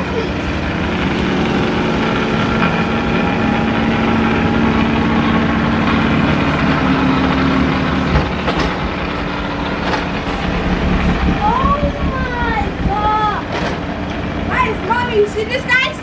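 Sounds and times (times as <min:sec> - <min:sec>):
tractor snowblower drone: 0:00.0 - 0:14.9.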